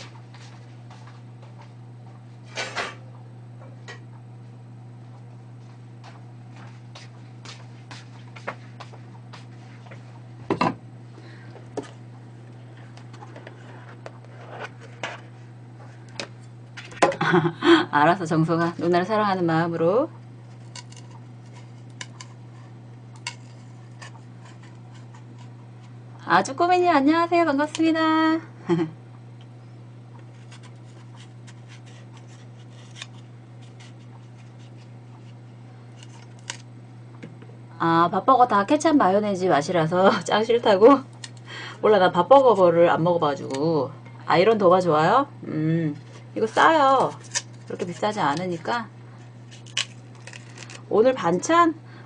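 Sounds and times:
steady low hum: 0:00.0 - 0:52.0
knife scraping vegetable skin: 0:23.2 - 0:25.5, 0:30.3 - 0:35.4, 0:47.0 - 0:48.0, 0:49.4 - 0:50.8.

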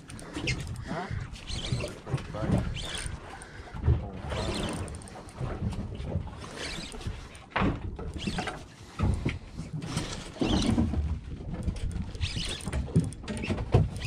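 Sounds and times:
fishing reel winding: 0:00.0 - 0:05.6, 0:06.3 - 0:07.4, 0:08.1 - 0:09.2, 0:11.6 - 0:14.0.

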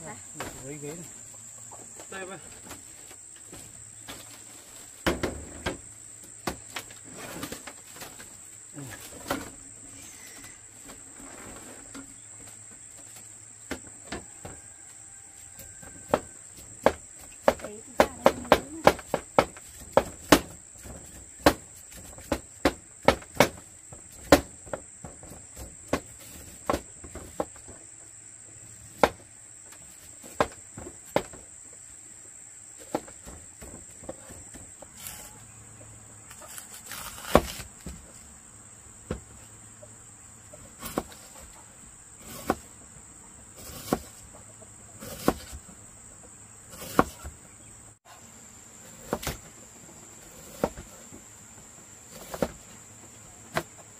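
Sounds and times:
high-pitched insect drone: 0:09.8 - 0:10.8
knife chopping on cutting board: 0:43.6 - 0:44.1, 0:45.0 - 0:45.5, 0:46.7 - 0:47.2.

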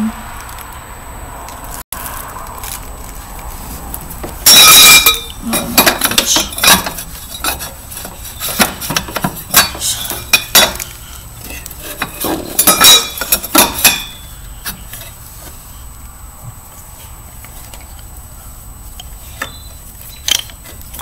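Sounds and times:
metal exhaust pipe clanking: 0:04.2 - 0:15.2.

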